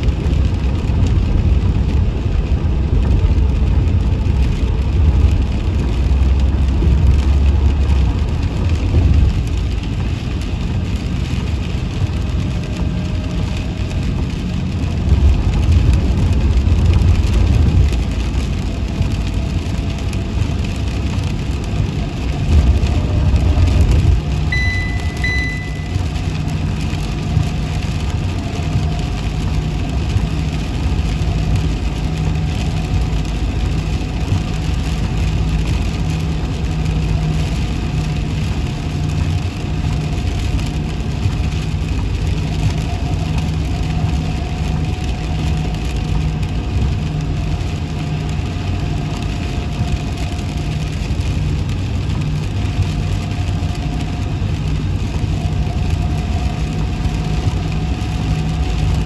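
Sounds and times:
road noise: 0:00.0 - 0:59.0
vehicle engine rumble: 0:00.0 - 0:59.0
short high beeps: 0:24.5 - 0:26.1.

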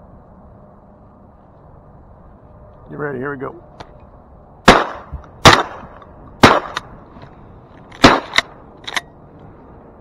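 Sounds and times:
shotgun blasts: 0:04.6 - 0:06.9, 0:08.0 - 0:08.5.

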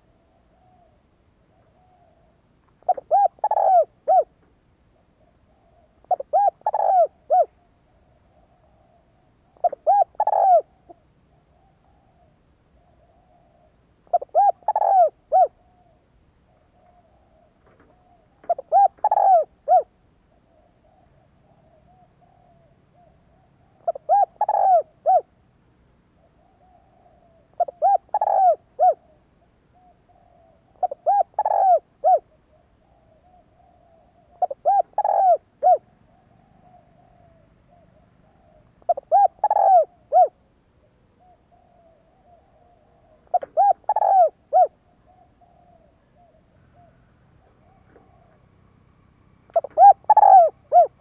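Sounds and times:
dove cooing: 0:00.0 - 0:51.0.

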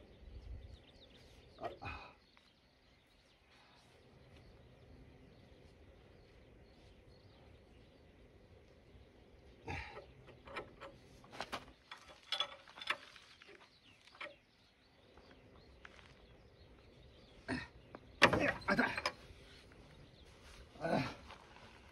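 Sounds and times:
metallic clicks and knocks: 0:09.9 - 0:14.5, 0:18.2 - 0:19.2.

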